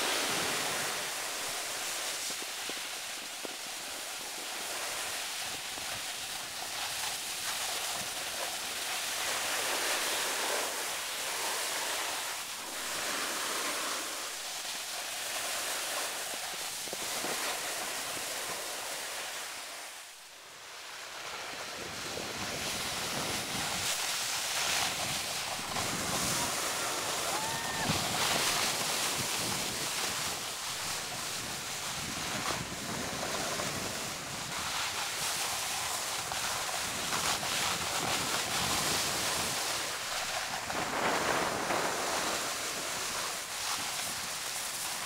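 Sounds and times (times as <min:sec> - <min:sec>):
snowboard sliding over snow: 0:00.0 - 0:45.0
wind: 0:00.0 - 0:45.0.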